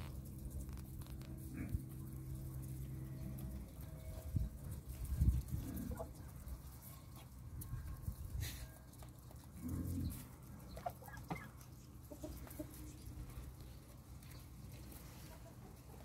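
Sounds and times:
birds pecking grain on concrete: 0.0 - 16.0
hens clucking: 1.2 - 7.3, 9.1 - 16.0.

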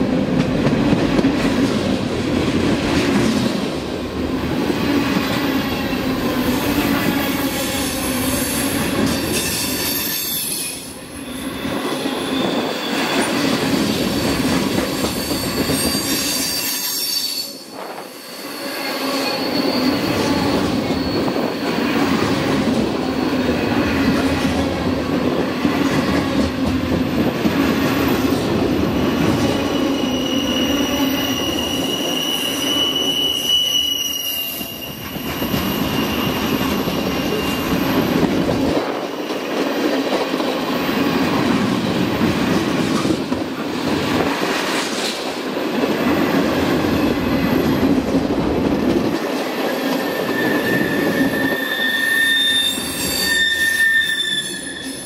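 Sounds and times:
freight train wheels on rails: 0.0 - 55.0
train wheel squeal: 5.3 - 22.4, 27.8 - 39.9, 49.5 - 55.0.

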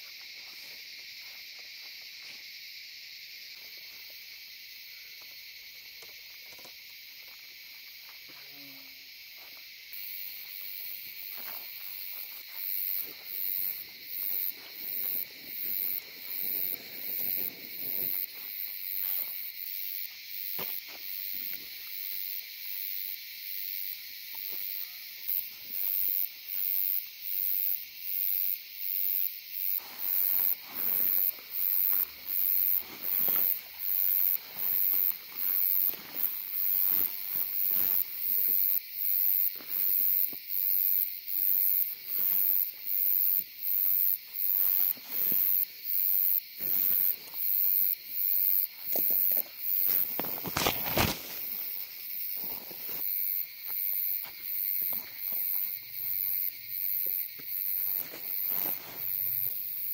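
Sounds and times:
insects droning: 0.0 - 59.9
very high insect chirp: 0.0 - 59.9
rustles and knocks of gear: 50.0 - 51.5.

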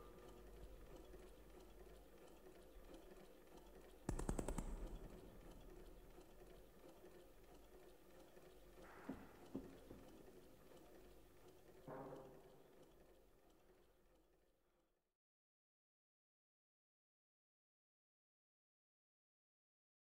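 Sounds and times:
rapid mechanical clicking: 0.0 - 13.9
faint low hum: 0.0 - 14.6.

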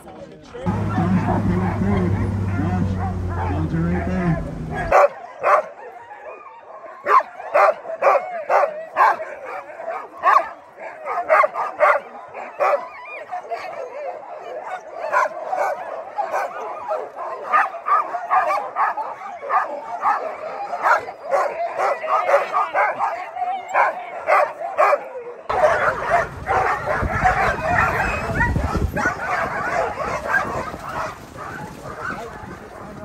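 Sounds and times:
sled dogs barking and yipping: 0.0 - 33.0
low rumbling noise: 0.7 - 5.0.

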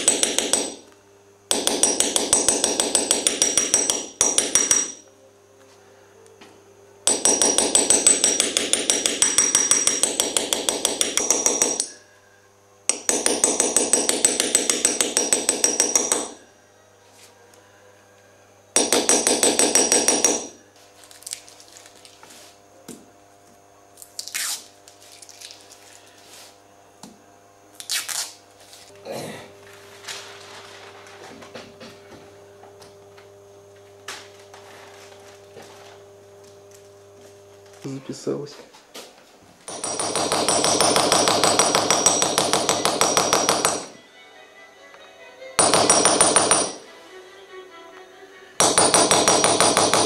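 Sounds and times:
hammer tapping steel punch: 0.0 - 0.8, 1.5 - 5.0, 7.1 - 12.0, 12.9 - 16.4, 18.8 - 20.6, 39.7 - 43.9, 45.6 - 46.8, 48.6 - 50.0.

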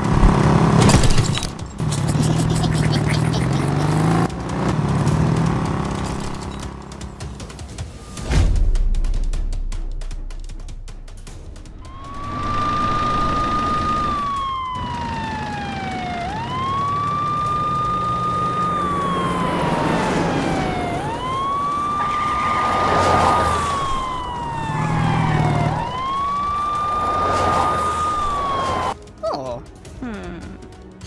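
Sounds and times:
police siren wailing: 11.8 - 29.0.

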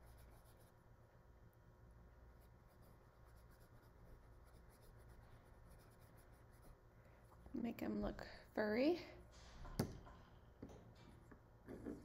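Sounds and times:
paintbrush strokes: 2.4 - 7.4.

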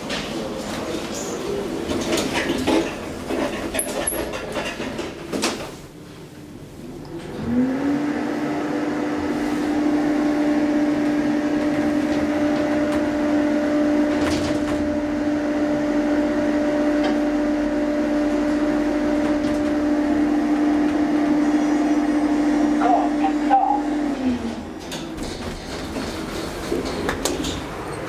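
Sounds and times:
elevator pump motor hum: 7.1 - 27.1.

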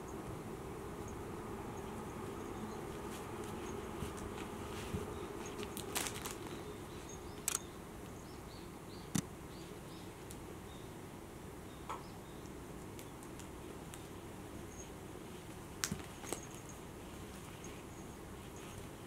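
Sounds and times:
steady low hum: 0.0 - 19.0
cat toy rustling: 2.0 - 6.7
sharp clicks: 7.4 - 7.7.

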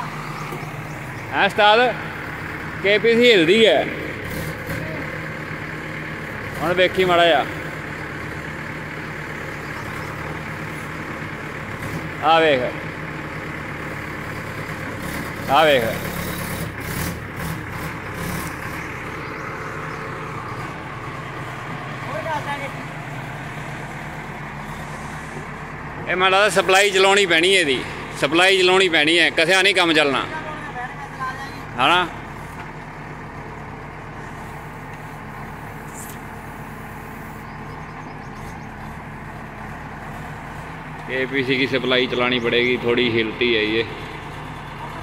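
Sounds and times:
diesel engine running: 0.0 - 45.0
knocks and scrapes of backhoe: 9.9 - 12.2, 14.7 - 19.0, 24.6 - 26.1, 34.2 - 37.2.

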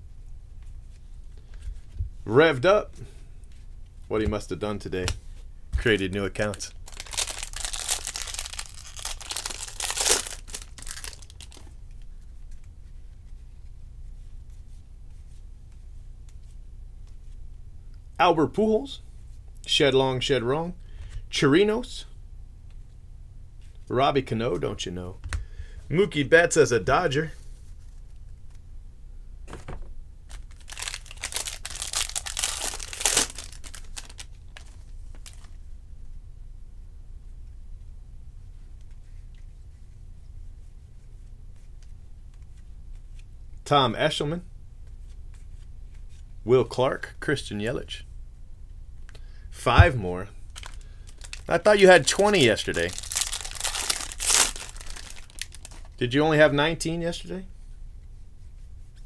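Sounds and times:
cards rustling: 5.8 - 12.8, 30.3 - 35.6, 49.8 - 56.0
foil wrapper tearing and crinkling: 6.4 - 11.6, 30.3 - 35.5, 50.5 - 56.0.

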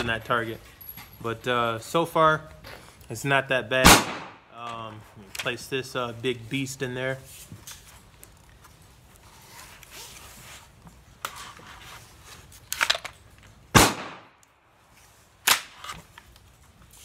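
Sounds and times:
loud gunshot with ringing: 3.8 - 4.5, 13.7 - 14.3
sharp crack: 3.8 - 4.8, 12.7 - 14.7, 15.4 - 16.0
magazine clicks and knocks: 12.7 - 14.6.

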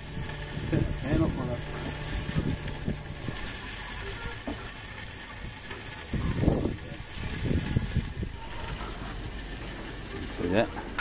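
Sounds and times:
low rumbling bumps: 0.0 - 4.8, 6.2 - 10.1
lobster sizzling on a barbecue: 0.0 - 11.0.

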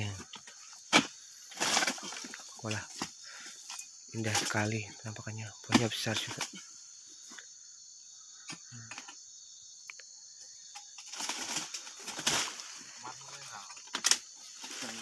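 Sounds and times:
rustling foliage: 0.0 - 7.5, 10.6 - 15.0
high-pitched insect buzz: 0.0 - 15.0.

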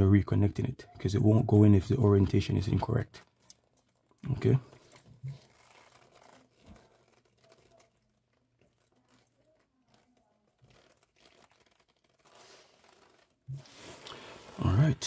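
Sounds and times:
faint rustling: 3.1 - 15.0.

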